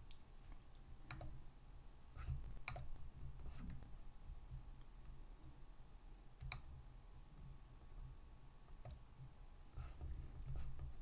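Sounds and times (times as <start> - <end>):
computer mouse clicks: 0.0 - 1.4, 2.2 - 3.8, 6.4 - 6.8, 8.7 - 9.0
low background hum: 0.0 - 11.0.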